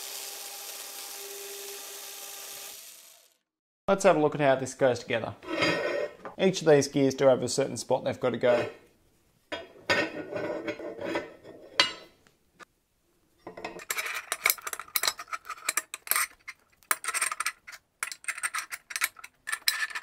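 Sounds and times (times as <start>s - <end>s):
metal gears clinking and clattering: 13.6s - 20.0s
quick clicks and rattles: 13.8s - 20.0s.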